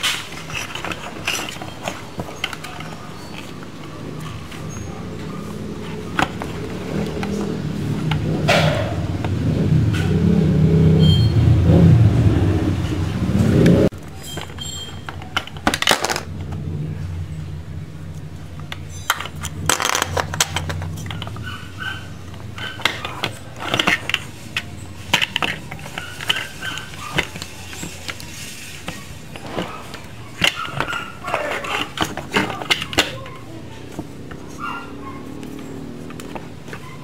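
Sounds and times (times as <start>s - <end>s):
loud low rumble: 7.8s - 13.9s
plastic toy parts clicking: 13.9s - 16.6s, 18.2s - 21.5s, 22.3s - 34.4s.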